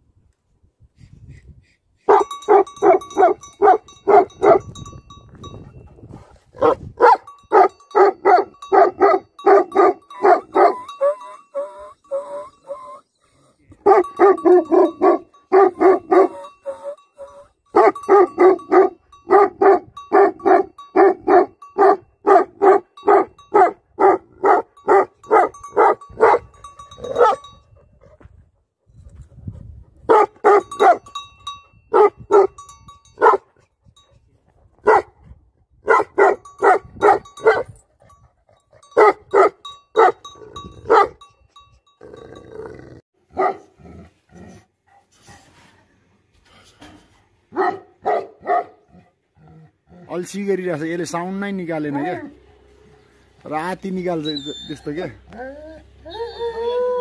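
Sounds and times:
dog barking: 2.1 - 4.7, 6.6 - 11.2, 13.8 - 16.5, 17.8 - 26.5, 27.1 - 27.5, 30.1 - 31.0, 31.9 - 32.6, 33.2 - 33.5, 34.8 - 35.2, 35.8 - 37.8, 39.0 - 40.2, 40.9 - 41.2, 43.3 - 43.7, 47.5 - 48.8.

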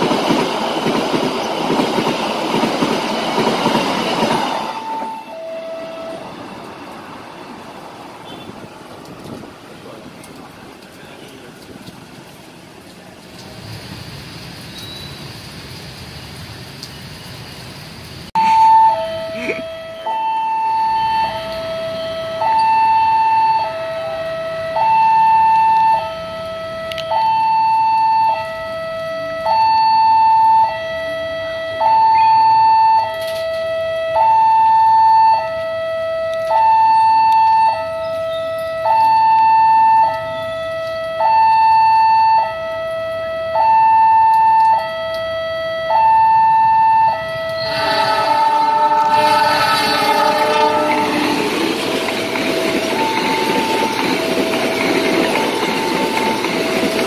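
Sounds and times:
two-tone level-crossing alarm: 4.2 - 6.2, 18.4 - 57.0
train horn: 4.6 - 6.3, 47.5 - 54.1
heavy rain hissing: 8.5 - 18.4, 47.6 - 54.3.

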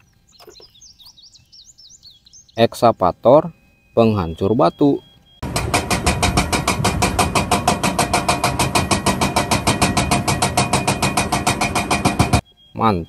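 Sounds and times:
hydraulic breaker hammering rock: 5.4 - 12.4.

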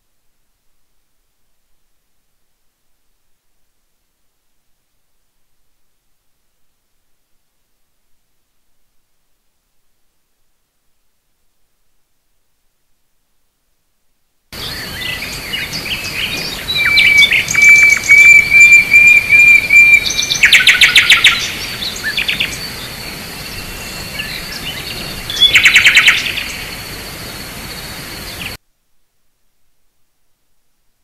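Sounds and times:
birds chirping and trilling: 14.6 - 28.6.

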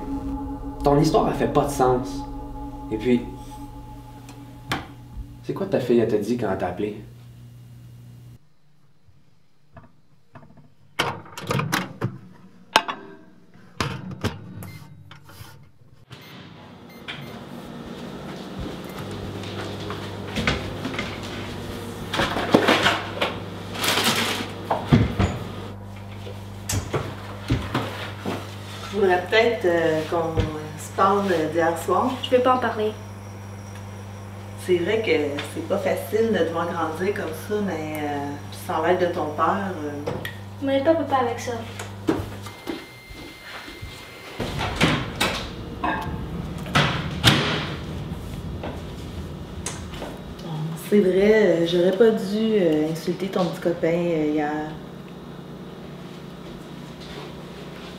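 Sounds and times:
low hum: 0.0 - 9.5, 17.5 - 43.1, 44.1 - 51.8.

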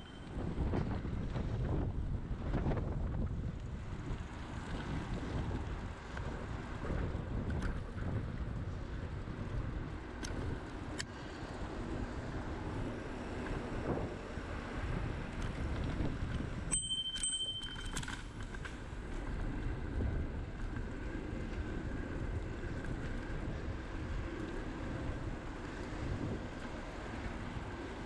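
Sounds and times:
clear high tone ringing: 0.0 - 0.3, 16.7 - 18.4
bicycle tyre rumble: 0.0 - 28.0
wind buffeting the microphone: 0.2 - 16.8, 18.4 - 28.0.

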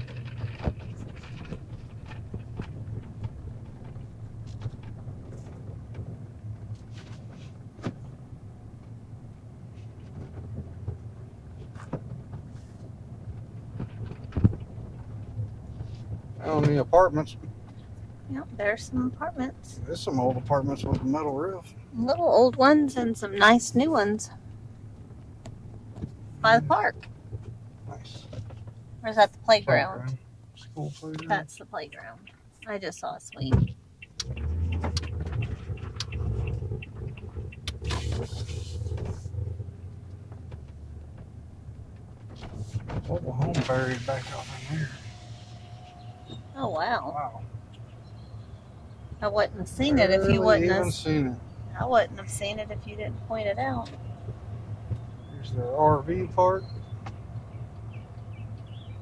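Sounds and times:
small knocks and rattles: 0.0 - 8.2, 9.7 - 18.2, 24.9 - 29.0, 33.5 - 43.6
car driving rumble from inside: 0.0 - 59.0
rush of hiss: 43.8 - 45.7.

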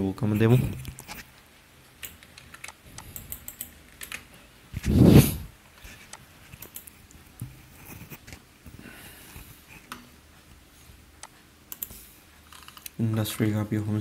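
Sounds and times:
computer keyboard clicks: 2.0 - 4.3.

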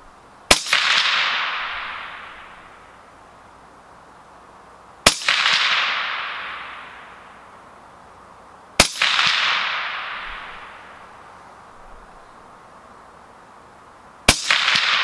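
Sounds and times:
suppressed rifle shots: 0.5 - 2.5, 5.0 - 6.9, 8.8 - 10.8, 14.3 - 15.0
echo off the range: 0.5 - 3.0, 5.0 - 7.5, 8.8 - 11.3, 14.3 - 15.0.

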